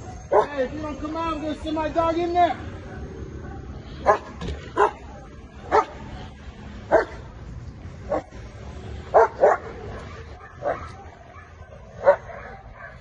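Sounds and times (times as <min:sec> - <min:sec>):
dog barking: 0:00.3 - 0:00.6, 0:02.9 - 0:05.1, 0:05.7 - 0:06.0, 0:06.9 - 0:07.2, 0:08.1 - 0:08.3, 0:09.1 - 0:13.0.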